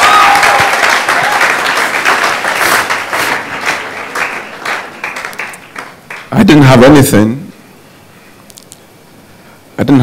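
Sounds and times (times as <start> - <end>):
congregation applauding: 0.0 - 6.6.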